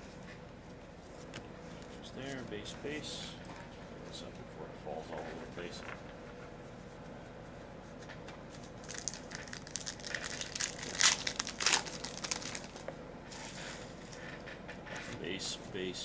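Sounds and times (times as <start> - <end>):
foil wrapper crinkling and tearing: 8.6 - 12.8.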